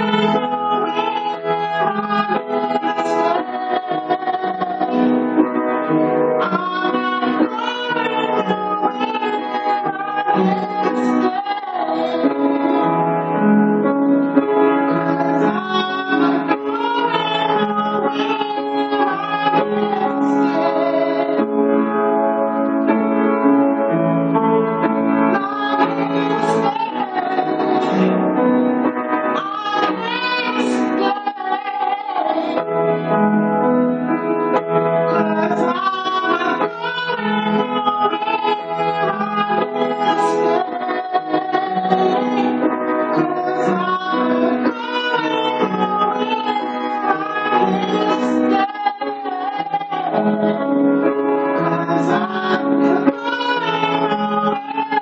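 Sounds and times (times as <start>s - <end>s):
person singing: 0.0s - 5.2s, 6.4s - 12.9s, 14.9s - 21.4s, 25.3s - 28.3s, 29.3s - 32.7s, 35.1s - 50.7s, 51.6s - 55.0s
keyboard chords and melody: 0.0s - 55.0s.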